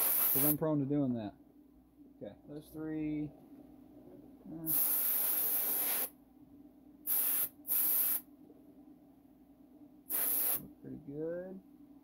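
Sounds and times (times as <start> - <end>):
paint spray hissing: 0.0 - 0.6, 4.7 - 6.1, 7.1 - 8.2, 10.1 - 10.6.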